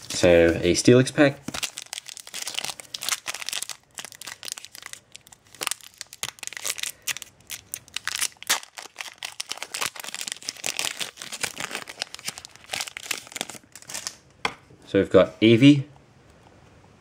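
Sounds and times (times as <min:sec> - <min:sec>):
foil wrapper crinkling and tearing: 0:00.0 - 0:14.2.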